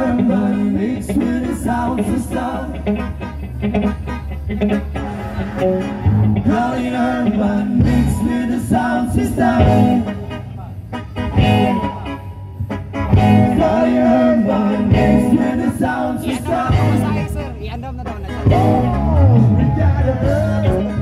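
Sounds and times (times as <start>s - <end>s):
man singing into a microphone: 0.0s - 2.8s, 6.4s - 10.2s, 13.4s - 17.4s, 18.5s - 21.0s
steady bass line: 0.0s - 21.0s
electric guitar: 18.3s - 21.0s.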